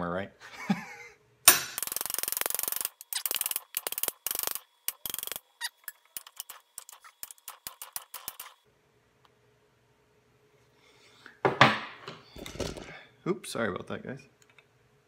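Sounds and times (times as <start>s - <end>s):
rapid metallic clicking: 1.8s - 5.4s, 6.2s - 8.6s.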